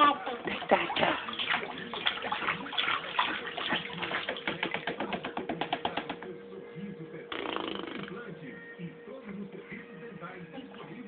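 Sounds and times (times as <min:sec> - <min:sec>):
baby splashing water: 0:00.0 - 0:06.2.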